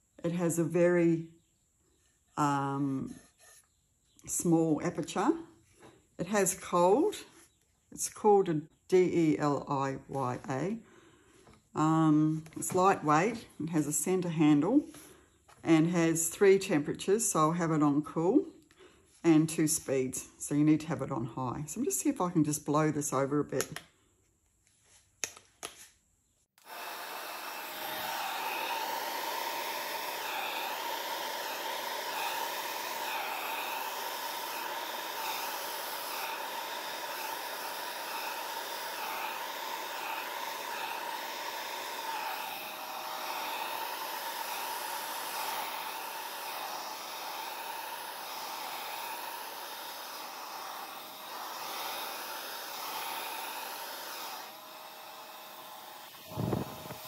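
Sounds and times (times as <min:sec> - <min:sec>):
hair dryer running with whine: 0:26.6 - 0:57.0.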